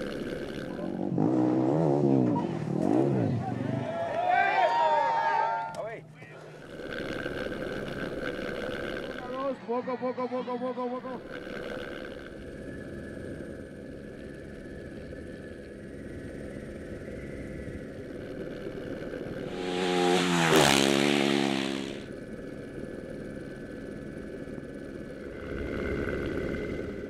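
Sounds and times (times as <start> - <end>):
motorcycle passing by: 0.0 - 4.0, 18.2 - 22.2, 25.2 - 27.0
motorcycle engine droning: 0.0 - 4.3, 5.8 - 27.0.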